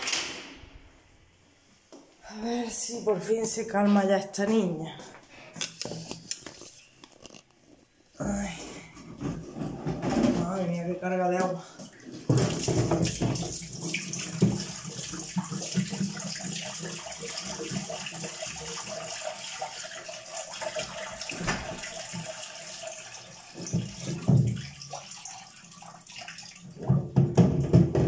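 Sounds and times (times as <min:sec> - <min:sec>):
water pouring from plastic tank: 0:11.7 - 0:28.0.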